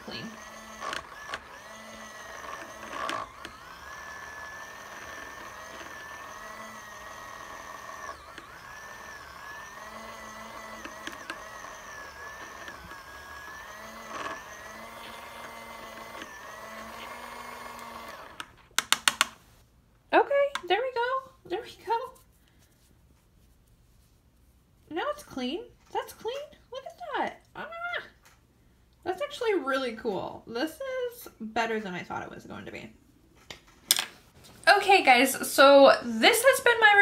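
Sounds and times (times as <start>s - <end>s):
small motor whining: 0.0s - 18.6s.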